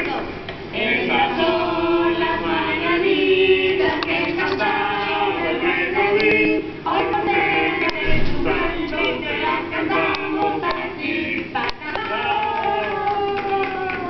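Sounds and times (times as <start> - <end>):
voices singing over music: 0.0 - 14.0.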